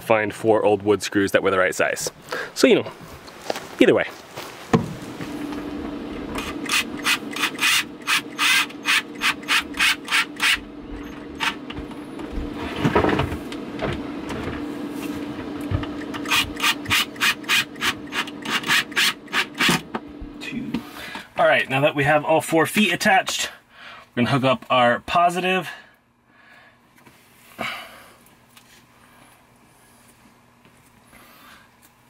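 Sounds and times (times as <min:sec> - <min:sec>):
screws grinding into wood: 0:06.4 - 0:11.6, 0:16.2 - 0:19.8.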